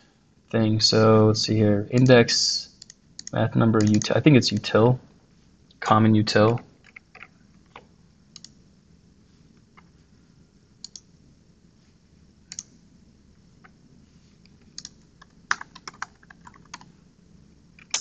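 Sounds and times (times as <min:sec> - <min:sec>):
keyboard keys clicking: 0:14.6 - 0:16.9.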